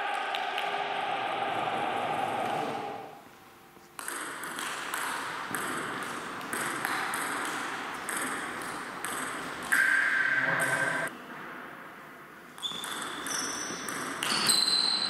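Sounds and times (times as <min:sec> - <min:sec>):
loud steady held tone: 0:00.0 - 0:03.2, 0:09.8 - 0:11.1.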